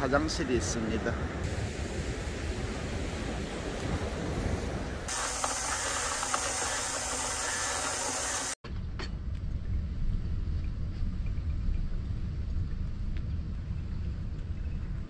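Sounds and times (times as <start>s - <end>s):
low steady rumble: 8.6s - 15.0s.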